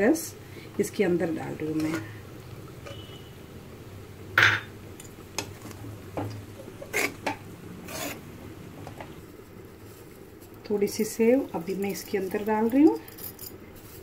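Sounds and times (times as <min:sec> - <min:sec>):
spoon scraping metal pan: 0:06.6 - 0:08.3.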